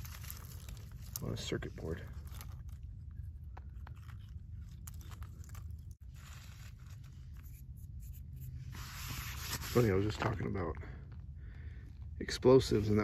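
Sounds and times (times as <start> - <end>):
small crunches and clicks on gravel: 0.0 - 7.4.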